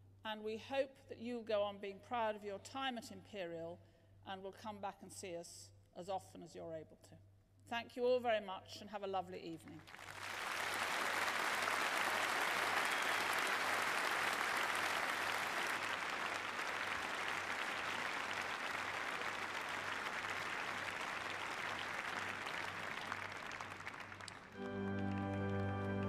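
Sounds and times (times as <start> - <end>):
audience applauding: 9.9 - 26.0.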